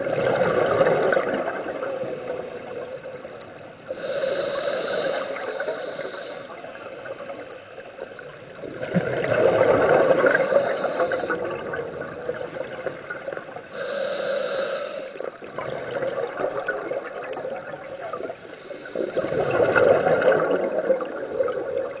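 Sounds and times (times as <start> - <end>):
gurgling exhaled bubbles: 0.0 - 13.7, 15.2 - 22.0
regulator hissing inhalation: 3.9 - 6.7, 10.1 - 11.4, 13.7 - 15.4, 18.4 - 19.6.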